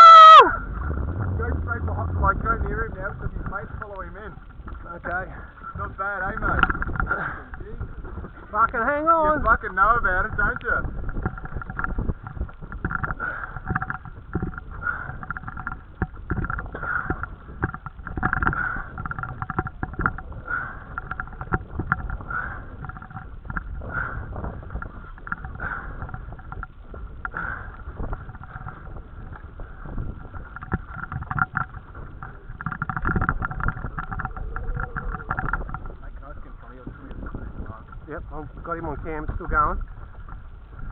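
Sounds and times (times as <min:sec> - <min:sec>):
water rumbling against boat: 0:00.0 - 0:40.9
wind rumble: 0:00.0 - 0:40.9
fishing reel drag whining: 0:11.0 - 0:36.3.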